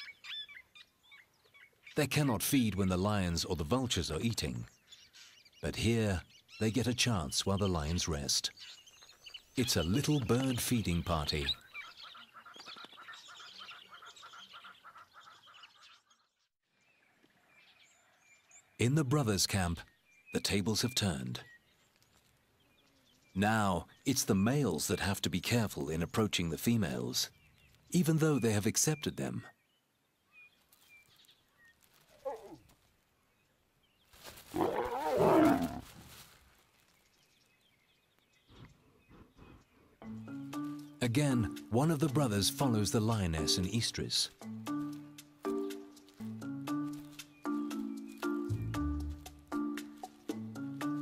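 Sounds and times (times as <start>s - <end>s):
small birds chirping: 0.0s - 42.8s, 43.7s - 51.0s
lions snarling: 32.2s - 32.6s, 34.5s - 35.8s.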